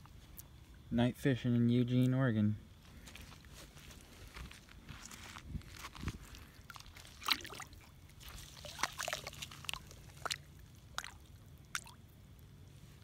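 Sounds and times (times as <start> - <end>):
water splashing and dripping: 6.7 - 12.2.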